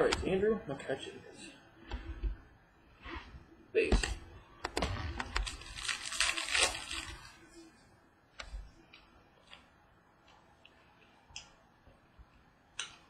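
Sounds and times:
wrapper crinkling: 5.4s - 7.4s.

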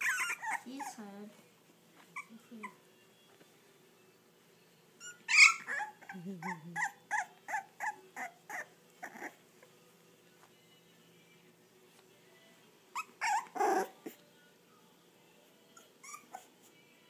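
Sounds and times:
puppies whimpering and squealing: 0.0s - 1.2s, 2.1s - 2.8s, 5.0s - 9.7s, 12.9s - 14.2s, 15.7s - 17.0s.

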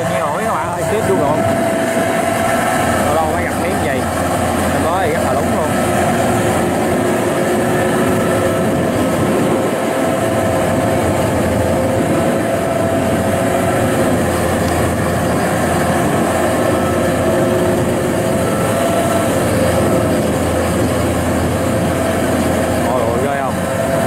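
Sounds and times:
combine harvester engine droning: 0.0s - 24.0s.

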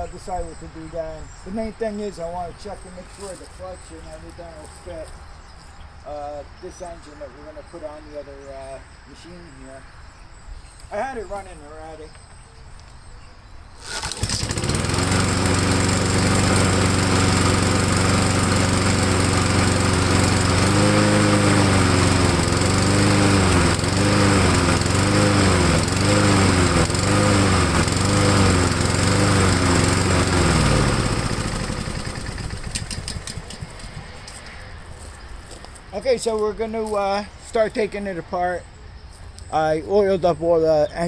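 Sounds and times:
lawn mower engine running: 2.1s - 5.2s, 13.8s - 34.4s.

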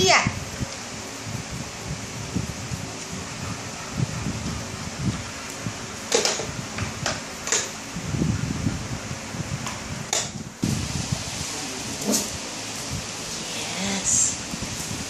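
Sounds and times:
steady low rumble: 7.9s - 15.0s.

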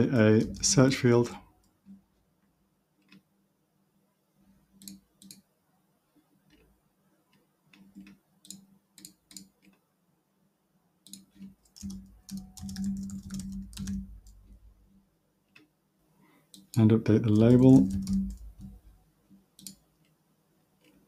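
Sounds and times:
keyboard typing: 0.2s - 1.0s, 11.1s - 14.8s, 16.5s - 19.0s, 19.6s - 19.8s
computer mouse clicks: 4.7s - 5.5s, 7.3s - 9.8s, 11.0s - 14.6s, 16.5s - 16.8s, 17.4s - 20.2s.

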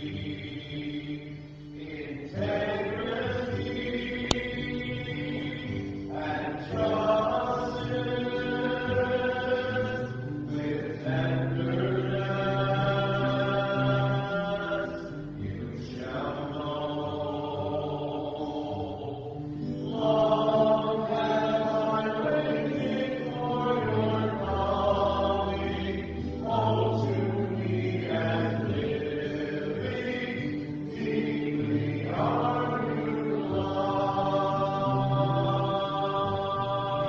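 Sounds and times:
person singing a slow hymn: 0.0s - 37.0s.

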